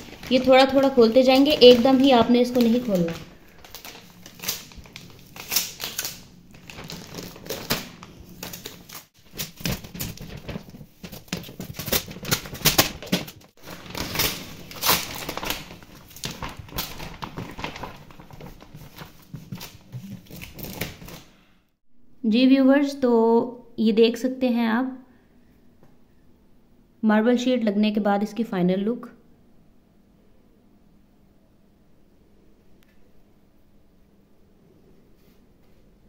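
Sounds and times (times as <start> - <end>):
plastic sheet crinkling: 0.0 - 21.4.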